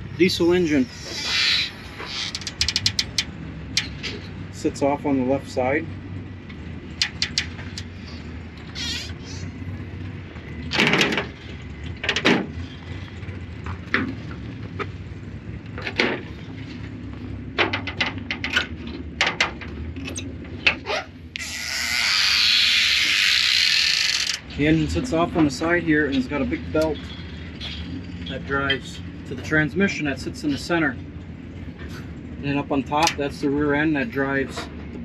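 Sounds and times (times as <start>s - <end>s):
steady low hum: 0.0s - 35.0s
scattered knocks and clicks: 2.0s - 4.4s, 6.5s - 8.7s, 10.6s - 15.0s, 17.6s - 20.8s.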